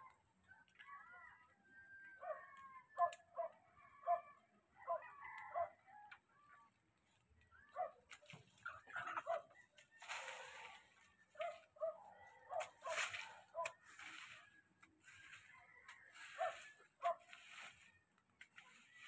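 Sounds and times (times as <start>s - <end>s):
chickens clucking: 8.1s - 19.0s.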